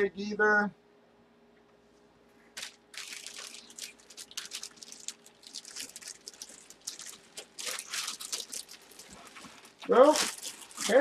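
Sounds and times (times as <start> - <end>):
packaging crinkling: 2.5 - 11.0.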